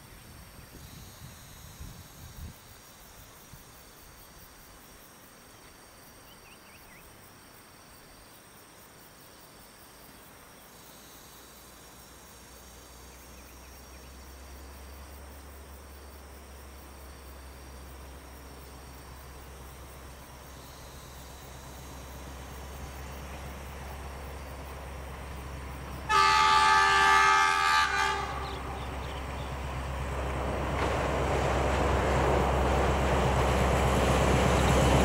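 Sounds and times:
insects droning: 0.0 - 35.0
diesel locomotive rumble: 16.4 - 35.0.

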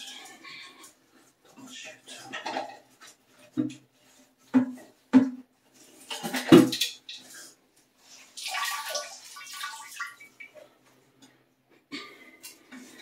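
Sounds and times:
water splashing and dripping: 6.0 - 10.7.

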